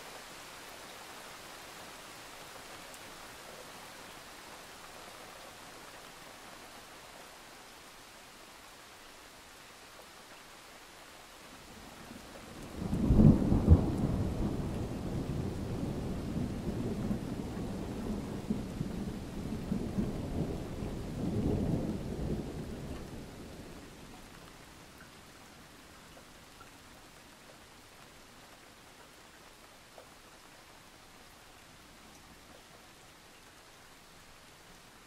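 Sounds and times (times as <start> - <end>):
faint hiss of rain: 0.0 - 35.0.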